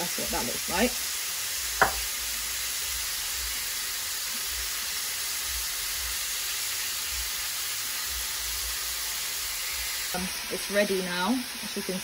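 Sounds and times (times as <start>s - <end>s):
prawns sizzling in frying pan: 0.0s - 12.0s.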